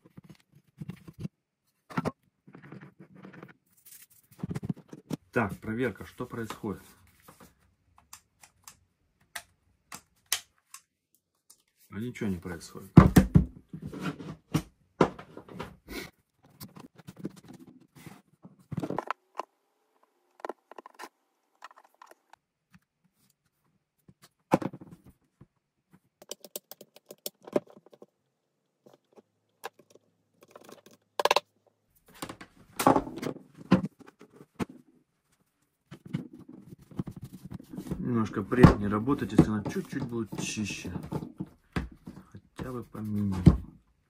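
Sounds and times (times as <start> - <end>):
clicks taps and scrapes of parts: 16.4 - 24.4, 25.4 - 28.2, 28.8 - 31.5.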